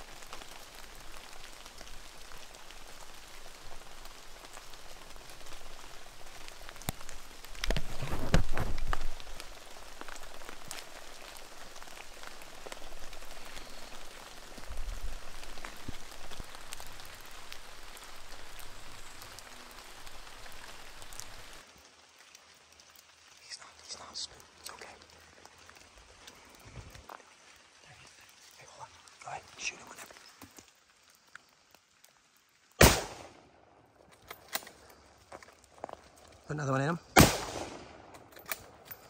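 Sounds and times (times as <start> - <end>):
rain pattering: 0.0 - 39.0.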